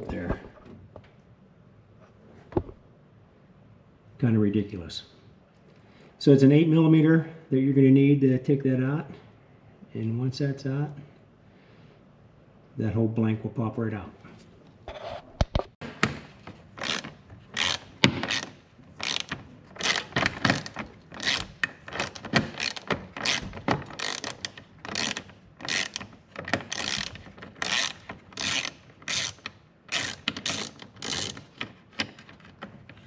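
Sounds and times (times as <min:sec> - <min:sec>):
ratchet clicking: 0:16.8 - 0:31.7.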